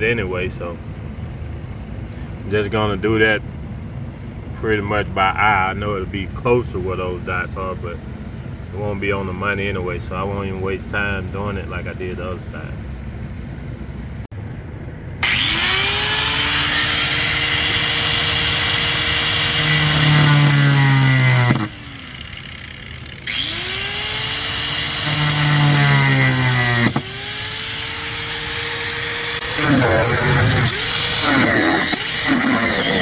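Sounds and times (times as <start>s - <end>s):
power cutting tool whining: 15.2s - 33.0s.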